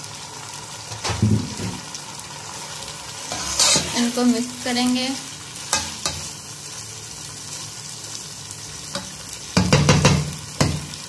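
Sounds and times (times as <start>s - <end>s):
rice sizzling in hot oil: 0.0s - 11.0s
metal spoon scraping a pot: 3.3s - 4.0s.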